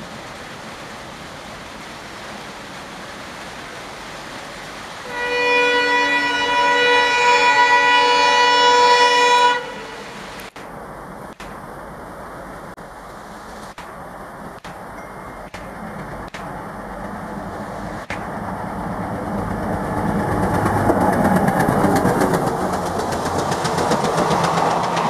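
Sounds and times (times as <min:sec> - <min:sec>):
heavy rain hissing: 0:00.0 - 0:18.9
locomotive horn blast: 0:05.0 - 0:10.5.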